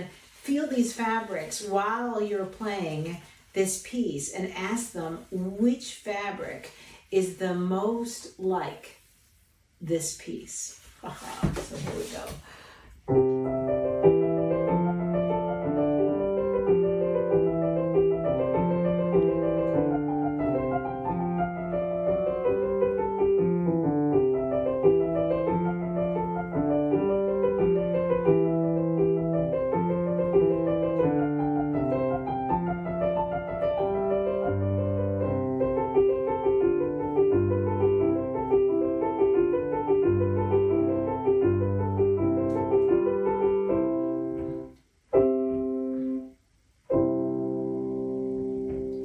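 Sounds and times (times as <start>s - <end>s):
grand piano playing: 13.1s - 46.3s, 46.9s - 49.0s.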